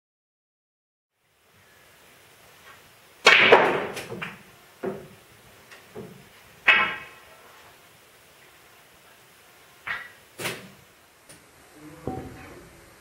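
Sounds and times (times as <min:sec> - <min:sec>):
snooker balls clicking: 0:02.6 - 0:07.3, 0:09.8 - 0:11.4
cue striking ball: 0:03.2 - 0:05.2, 0:05.9 - 0:07.2, 0:09.8 - 0:10.8.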